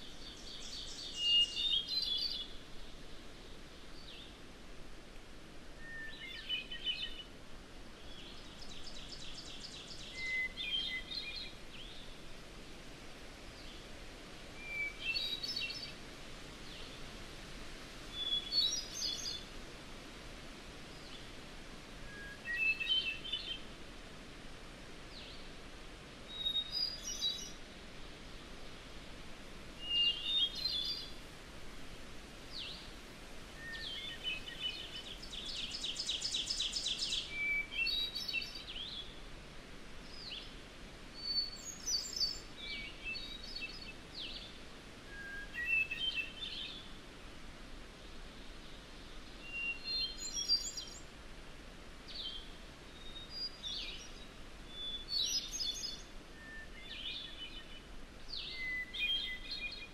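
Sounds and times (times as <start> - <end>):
faint steady hiss: 0.0 - 59.9
birds singing: 29.8 - 31.2, 33.6 - 39.2, 41.2 - 44.5, 45.1 - 46.9, 49.5 - 51.0, 52.1 - 59.9.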